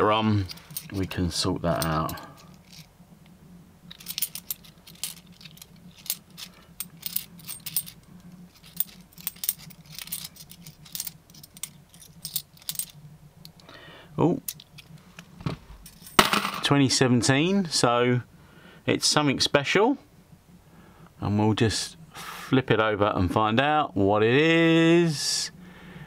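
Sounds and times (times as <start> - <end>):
coins clinking: 0.4 - 2.9, 3.9 - 13.0, 15.8 - 16.6.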